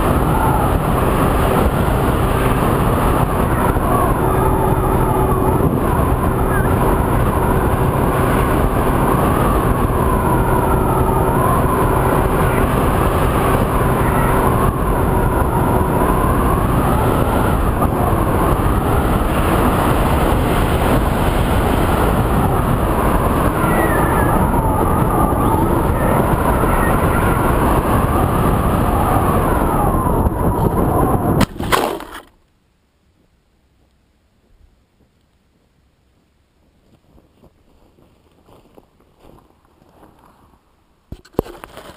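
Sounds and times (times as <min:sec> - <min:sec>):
electric motor whine: 0:00.0 - 0:31.5
wind rush: 0:00.0 - 0:31.7.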